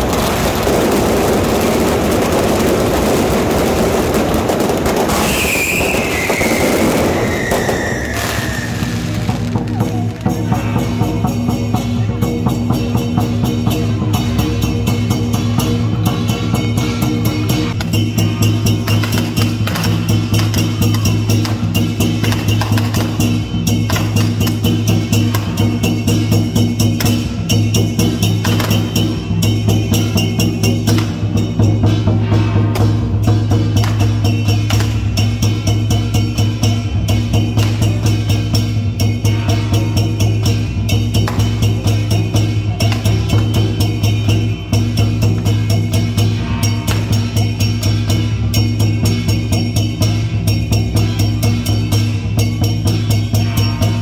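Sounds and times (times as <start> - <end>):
fireworks: 0.0 - 11.7, 17.4 - 38.4
music with fast drum beat: 0.0 - 54.0
sharp percussive strokes: 0.0 - 54.0.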